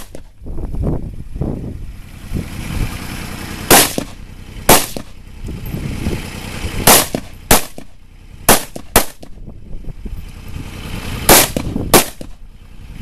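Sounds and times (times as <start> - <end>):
rifle shots with echo: 3.7 - 5.2, 6.8 - 7.9, 8.5 - 9.4, 11.3 - 12.4.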